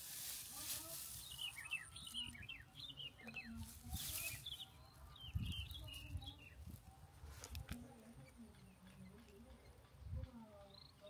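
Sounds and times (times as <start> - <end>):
rustling in grass: 0.0 - 2.5, 3.2 - 8.0.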